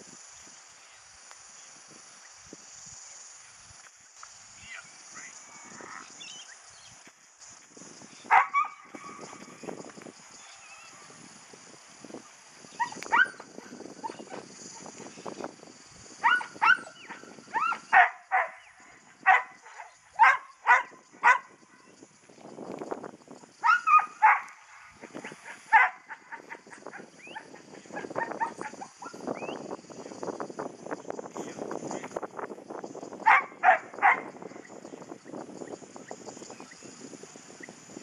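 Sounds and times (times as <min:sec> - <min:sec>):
dog barking: 0:08.3 - 0:08.8, 0:16.2 - 0:21.4, 0:23.6 - 0:24.5, 0:25.7 - 0:26.2, 0:33.3 - 0:34.3.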